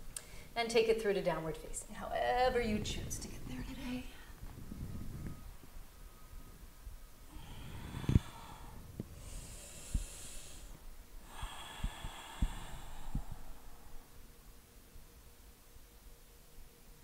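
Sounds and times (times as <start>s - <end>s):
woman breathing: 0.1s - 0.6s, 7.2s - 14.4s.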